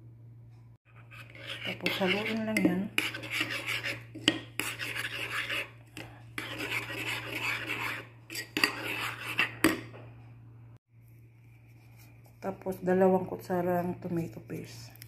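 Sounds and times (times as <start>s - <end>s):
spoon scraping ceramic bowl: 0.9s - 9.9s.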